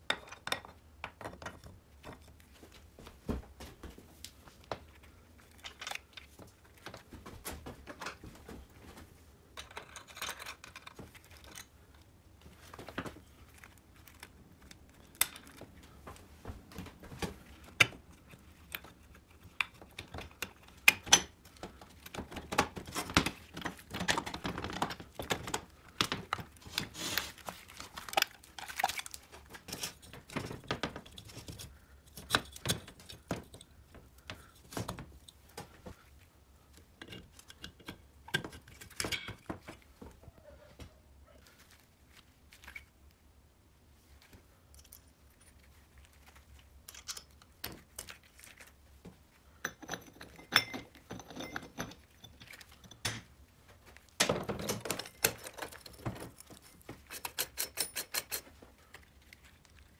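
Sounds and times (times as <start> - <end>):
metal parts and tools clattering: 9.6 - 11.7, 49.6 - 53.3, 54.3 - 58.6.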